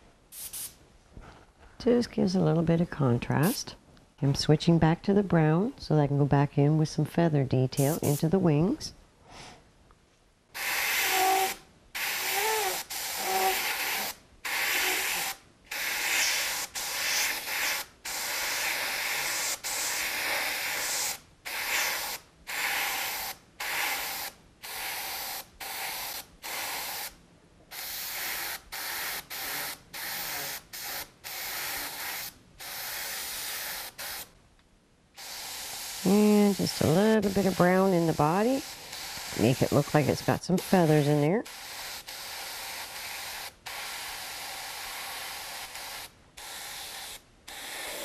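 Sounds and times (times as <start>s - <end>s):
airbrush spraying hisses: 0.3s - 0.8s, 7.8s - 8.3s, 10.6s - 34.3s, 35.2s - 48.0s.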